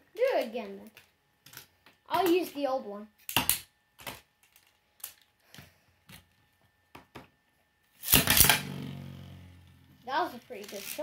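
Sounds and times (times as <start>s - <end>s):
ripcords ripping whir: 8.0s - 11.0s.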